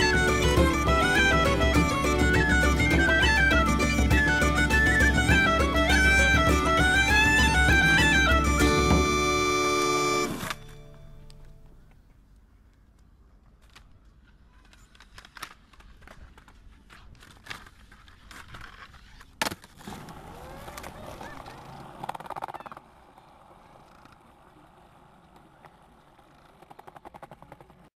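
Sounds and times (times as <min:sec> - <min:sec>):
wheels rolling over pavement: 0:13.4 - 0:27.9
skateboard sharp crack: 0:13.6 - 0:27.9
skateboard clacks: 0:13.7 - 0:27.9
fast run of clicks: 0:25.2 - 0:27.9.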